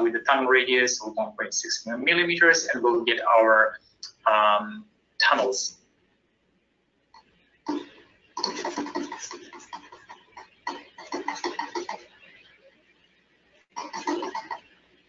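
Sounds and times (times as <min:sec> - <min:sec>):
man speaking: 0:00.0 - 0:05.8.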